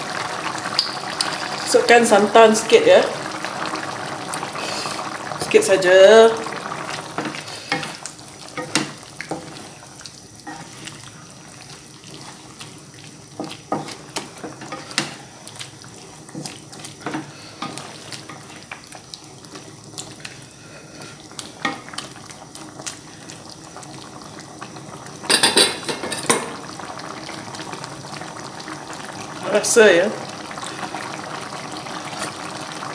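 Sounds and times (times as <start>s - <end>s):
curry bubbling: 0.0s - 32.9s
spatula scraping a wok: 10.4s - 11.0s
utensils clattering on pan: 25.3s - 26.6s.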